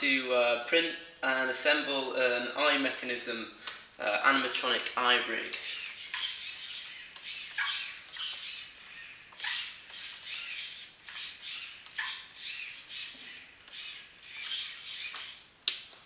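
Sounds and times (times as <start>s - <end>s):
servo motors whirring: 5.2s - 15.4s.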